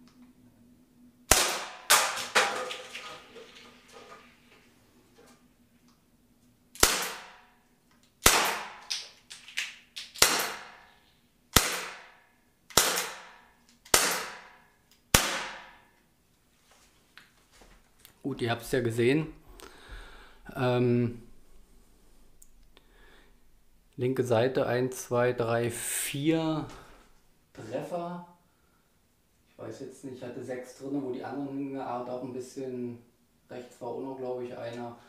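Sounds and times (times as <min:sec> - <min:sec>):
air pistol shots: 0:01.3 - 0:02.3, 0:06.8 - 0:07.5, 0:08.2 - 0:09.1, 0:10.0 - 0:10.9, 0:11.5 - 0:15.8.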